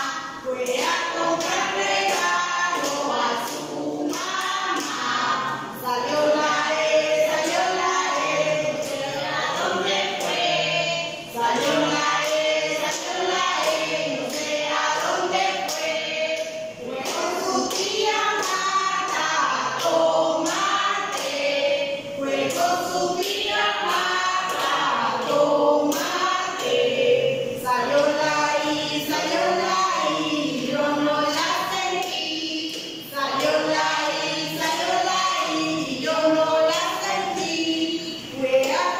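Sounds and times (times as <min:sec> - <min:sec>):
women singing unaccompanied: 0:00.0 - 0:38.9
hand claps: 0:00.1 - 0:06.5, 0:11.4 - 0:21.5, 0:22.4 - 0:26.9, 0:31.3 - 0:34.0.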